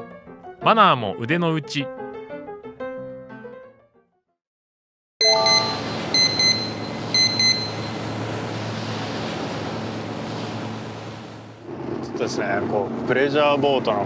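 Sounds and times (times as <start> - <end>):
high electronic beeps: 5.2 - 8.0
boat engine hum: 5.2 - 14.0
rushing wind and water: 5.4 - 11.6.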